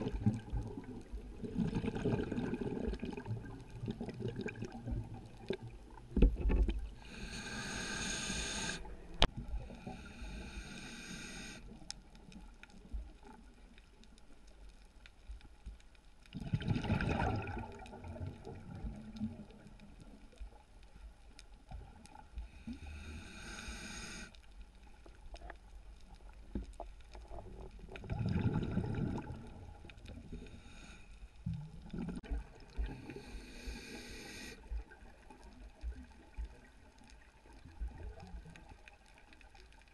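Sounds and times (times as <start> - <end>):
exhaled bubbles underwater: 0.0 - 7.3, 16.3 - 20.3, 27.2 - 30.5, 31.5 - 33.5, 34.6 - 39.0
regulator hiss on inhalation: 7.0 - 8.9, 9.7 - 11.7, 22.6 - 24.4, 33.0 - 34.7.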